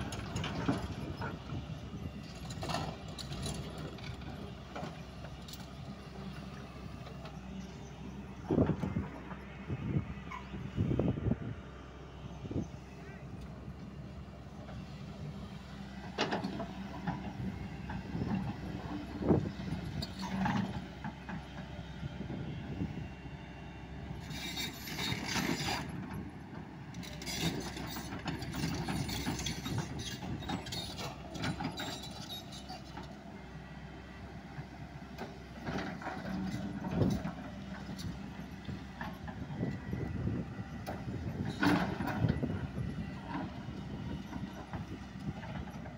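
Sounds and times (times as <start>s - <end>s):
excavator diesel engine running: 0.0s - 45.9s.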